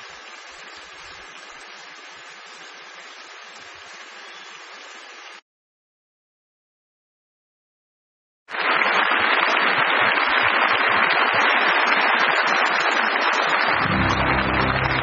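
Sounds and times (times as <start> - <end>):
dense crackling noise: 8.5 - 15.0
accordion music with held chords: 13.8 - 15.0.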